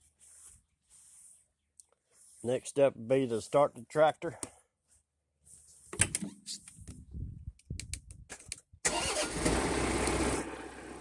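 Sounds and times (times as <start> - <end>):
diesel engine starting and idling: 8.8 - 11.0.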